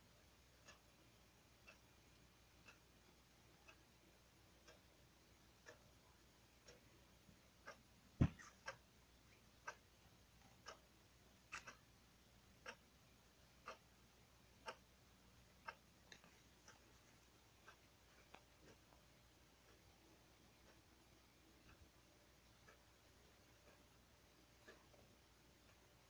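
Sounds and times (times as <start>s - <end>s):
clock ticking: 0.0s - 26.0s
loud thump: 8.2s - 8.4s.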